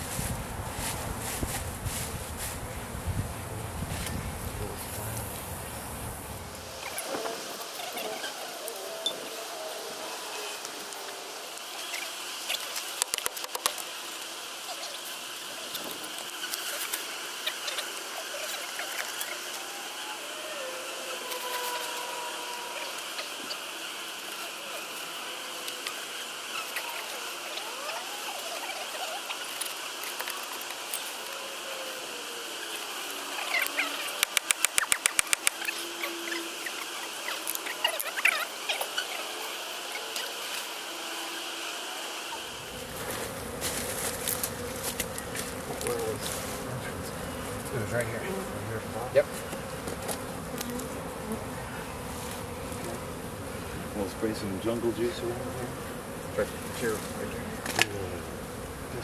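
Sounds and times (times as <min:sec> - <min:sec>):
steady hiss: 0:00.0 - 0:20.0
bee colony buzzing: 0:00.0 - 0:59.0
honeycomb crackling and rustling: 0:42.7 - 0:48.2.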